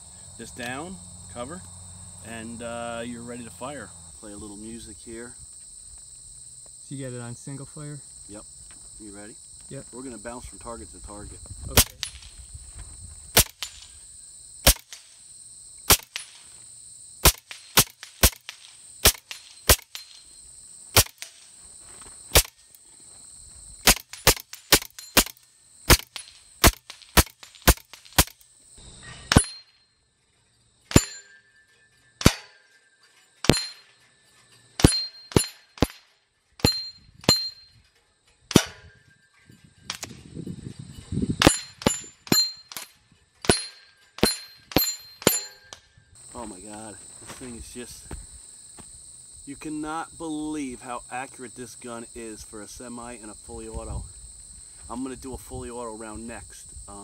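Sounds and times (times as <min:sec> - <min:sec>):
air rifle shots: 0:11.7 - 0:12.3, 0:13.4 - 0:13.9, 0:14.6 - 0:15.1, 0:15.9 - 0:16.4, 0:17.2 - 0:20.2, 0:20.9 - 0:21.4, 0:23.8 - 0:28.4
steel targets ringing: 0:28.8 - 0:30.1, 0:30.8 - 0:39.4, 0:41.4 - 0:45.8.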